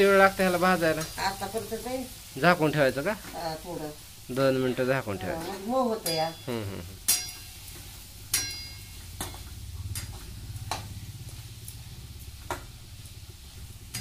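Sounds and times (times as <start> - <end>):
frying sizzle: 0.0 - 14.0
low steady hum: 4.9 - 14.0.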